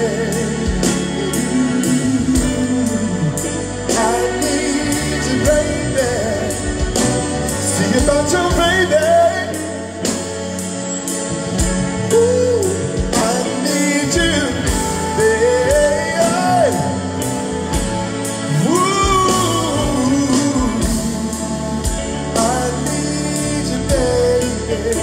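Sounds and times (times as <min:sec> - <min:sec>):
man singing vocal runs: 0:00.0 - 0:10.0, 0:18.5 - 0:25.0
bass line: 0:00.0 - 0:25.0.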